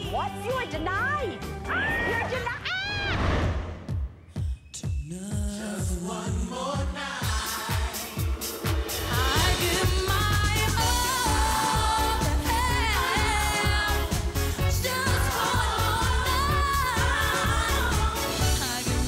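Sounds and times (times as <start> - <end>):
pop song with sung vocal: 4.3 - 19.0.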